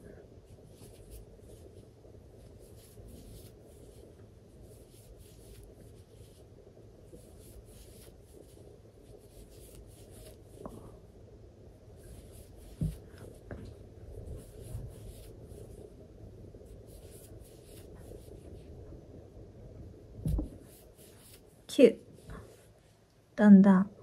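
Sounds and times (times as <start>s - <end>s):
crochet hook pulling yarn: 4.7s - 6.4s, 7.1s - 10.8s, 14.2s - 15.8s, 16.9s - 18.4s.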